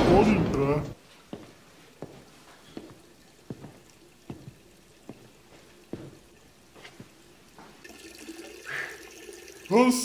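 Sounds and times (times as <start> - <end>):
footsteps walking: 0.9 - 7.9.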